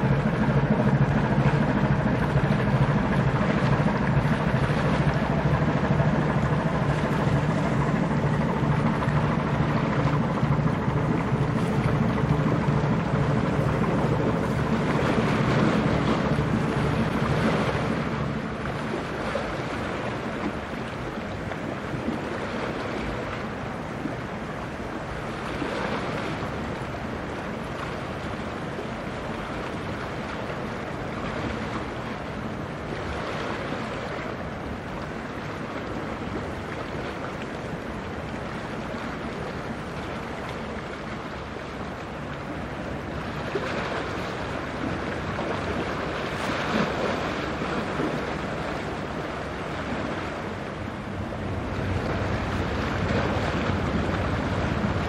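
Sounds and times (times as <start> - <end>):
waves washing: 0.0 - 55.0
wind on microphone: 0.0 - 55.0.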